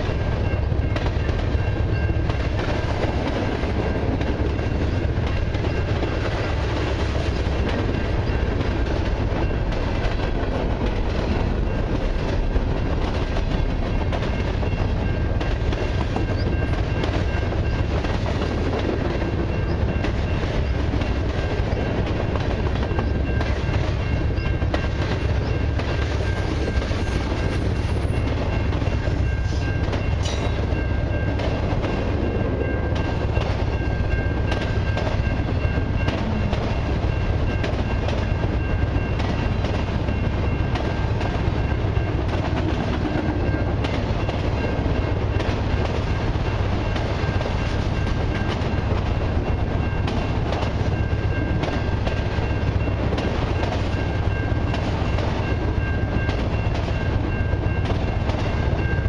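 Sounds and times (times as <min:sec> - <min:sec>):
clickety-clack of wheels: 0:00.0 - 0:59.0
train wheels rumbling on rail: 0:00.0 - 0:59.0.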